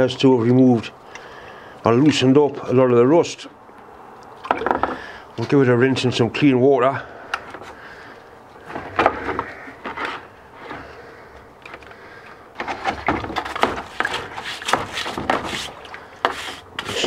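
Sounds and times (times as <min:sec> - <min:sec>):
stiff brush scrubbing metal: 0:12.6 - 0:17.0.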